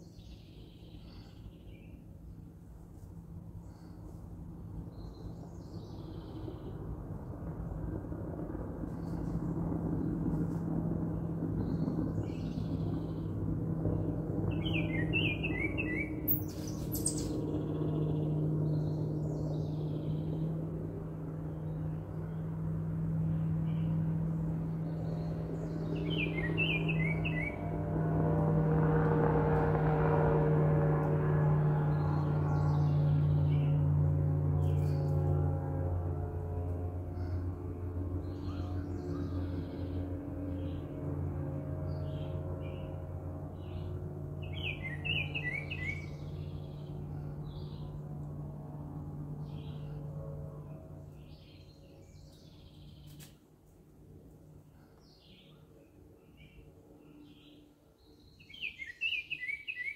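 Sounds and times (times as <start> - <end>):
songbirds chirping: 0.0 - 2.7, 3.4 - 6.9, 11.1 - 22.6, 23.2 - 27.7, 37.1 - 41.2, 41.8 - 48.4, 49.2 - 59.9
steady low hum: 0.0 - 59.1
bird chirping descending notes: 13.9 - 20.4, 25.6 - 27.6, 44.4 - 46.8.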